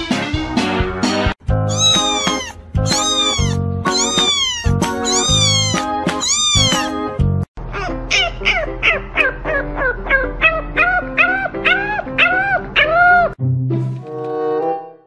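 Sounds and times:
music: 0.0s - 15.0s
kitten meowing: 1.7s - 7.0s.

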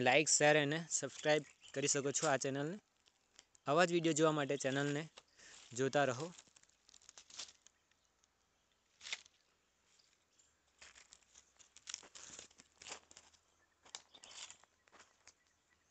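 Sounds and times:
leaves and branches rustling: 4.6s - 15.6s.

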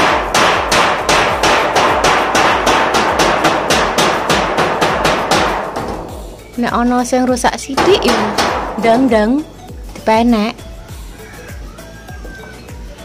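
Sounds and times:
hammer blows on metal gutter: 0.0s - 9.5s.

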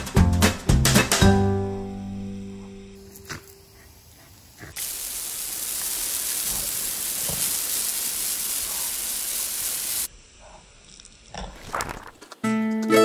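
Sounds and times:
water spraying from garden hose: 2.9s - 12.2s.

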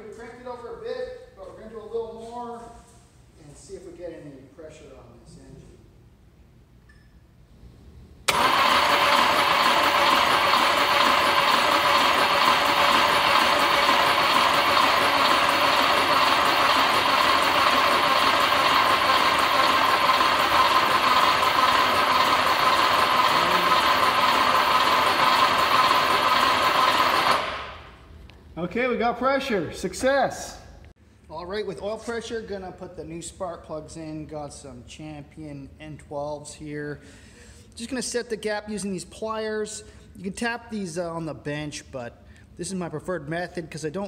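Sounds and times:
starter motor cranking engine: 8.3s - 27.9s.

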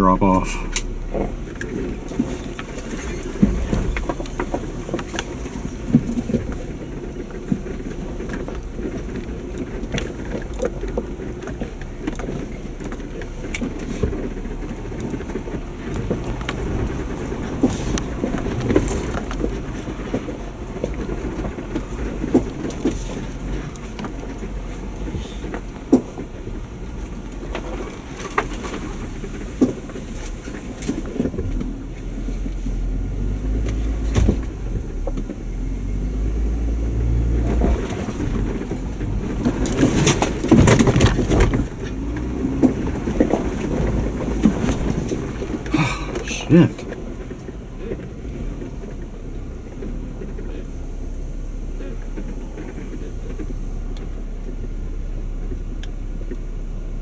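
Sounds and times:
low engine rumble: 0.0s - 57.0s
knocks and clicks over rocks: 0.7s - 32.6s, 37.3s - 50.7s.

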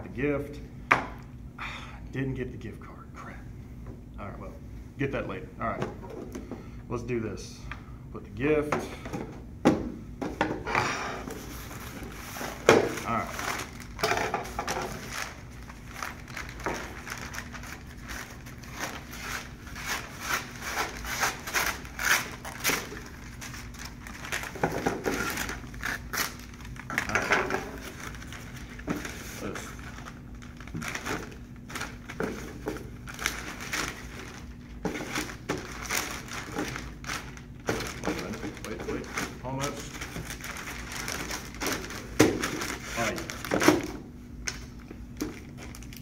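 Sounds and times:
wrapping paper rustling: 11.3s - 46.0s.

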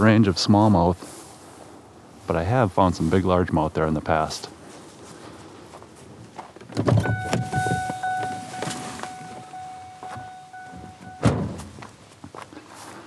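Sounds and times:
steady high electronic tone: 7.0s - 11.3s
loud slam: 11.2s - 11.7s.

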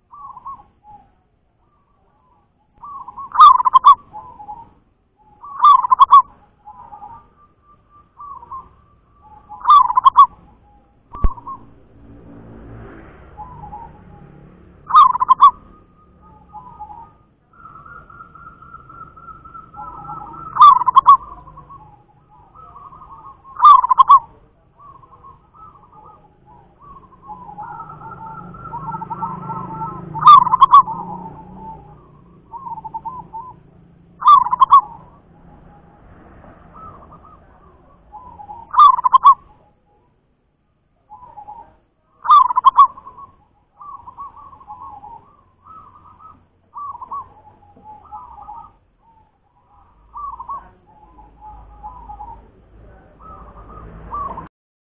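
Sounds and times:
faint chirping: 0.0s - 11.8s, 13.3s - 54.5s
dove cooing: 0.0s - 12.0s, 13.3s - 40.2s, 41.0s - 54.5s.

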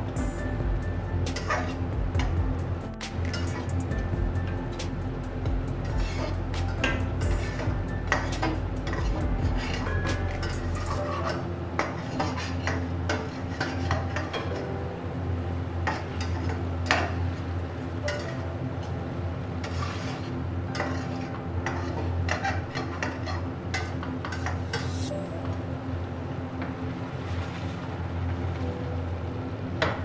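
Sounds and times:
metal spatula scraping a pan: 5.8s - 14.5s, 19.6s - 25.1s.

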